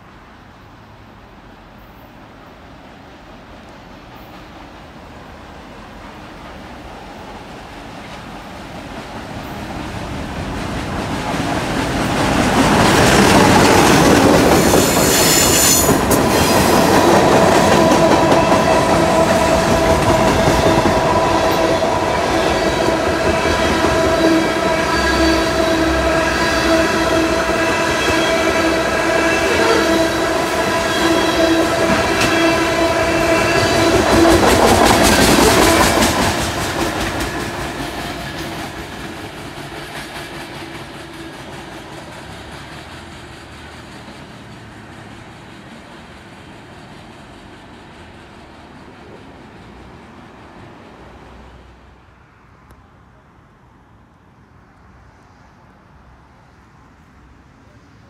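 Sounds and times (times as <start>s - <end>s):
locomotives passing: 3.1s - 51.6s
train wheels squealing: 13.4s - 49.2s.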